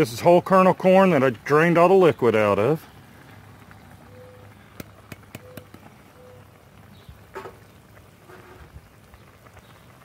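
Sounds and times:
low steady hum: 2.4 - 10.0
corn kernels tapping into pan: 4.8 - 5.8.

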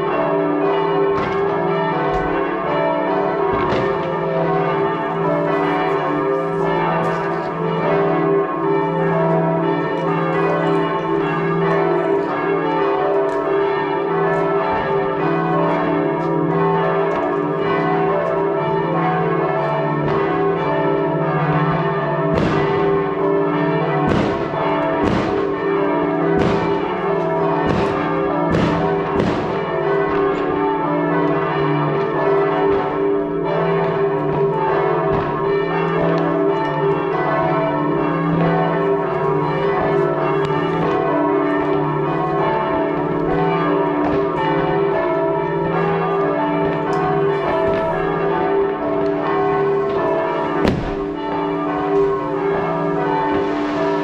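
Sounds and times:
church bells ringing: 0.0 - 54.0
firework bangs: 22.3 - 22.8, 24.0 - 25.6, 26.4 - 26.9, 27.6 - 30.2, 50.6 - 51.2, 53.2 - 54.0.

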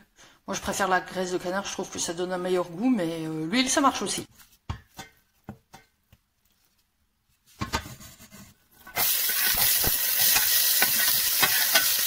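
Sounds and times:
wooden spoon scraping pot: 7.5 - 12.0
onion frying sizzle: 8.8 - 12.0.

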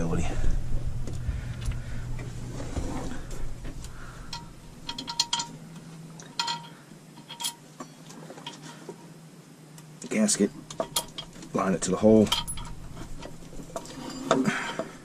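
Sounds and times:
metal parts clinking: 4.0 - 8.9, 10.4 - 15.0.

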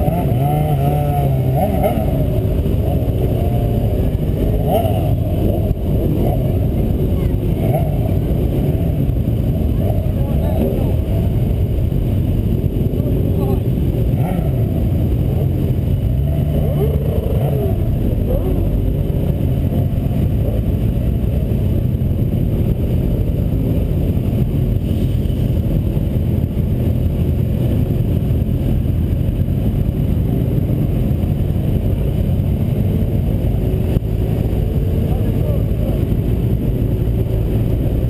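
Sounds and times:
motorcycle engine rumble: 0.0 - 38.0
other motorcycles: 0.0 - 38.0
wind buffeting: 0.0 - 38.0.

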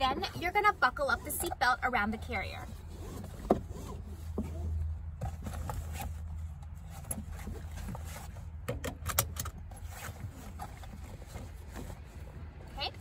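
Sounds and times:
seatbelt webbing sliding on fabric: 0.2 - 4.8
seatbelt buckle metal clicks: 8.7 - 9.6.

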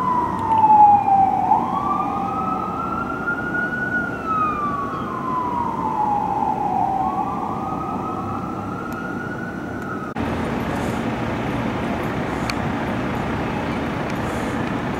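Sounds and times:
fire engine siren wailing: 0.0 - 12.0
street rumble: 0.0 - 14.9.

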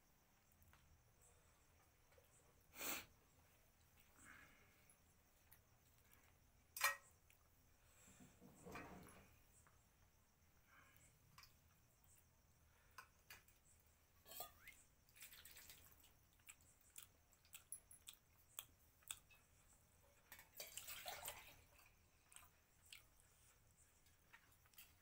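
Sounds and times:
chewing: 15.4 - 19.8, 20.6 - 23.6
fingers squishing through food: 16.4 - 19.3.

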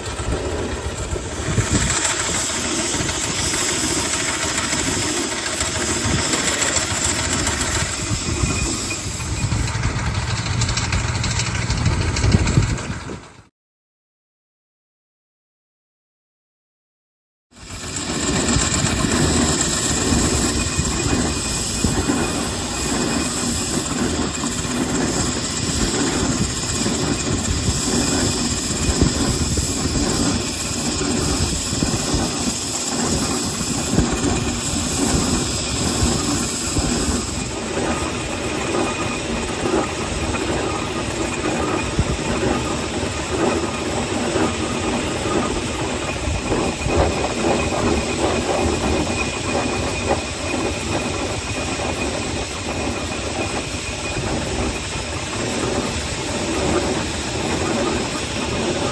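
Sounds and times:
steam hissing: 0.0 - 13.2, 17.6 - 58.9
iron wheels clattering: 0.0 - 13.5, 17.6 - 58.9
steam exhaust chuffing: 0.0 - 13.5, 17.6 - 58.9.

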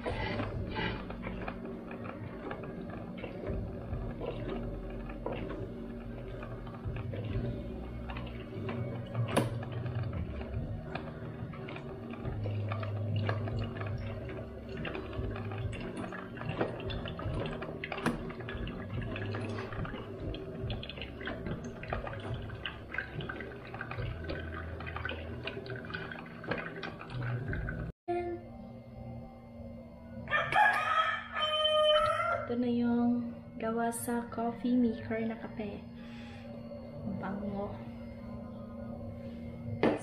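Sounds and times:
coffee dripping and gurgling: 0.0 - 28.0
coffee maker boiling and sputtering: 0.0 - 28.4, 29.3 - 40.0
low hum: 0.0 - 40.0.

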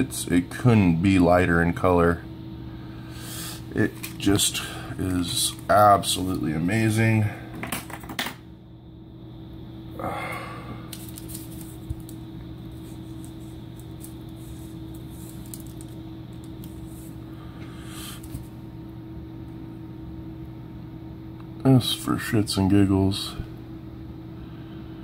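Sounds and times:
low hum: 0.0 - 21.6
parchment paper rustling: 3.4 - 6.2, 10.9 - 18.5.

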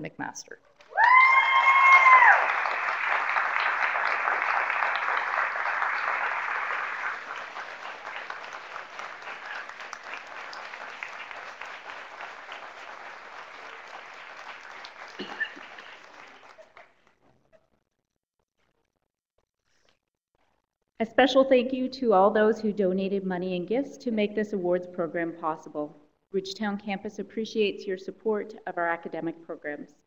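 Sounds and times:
audience applauding: 0.8 - 17.0.

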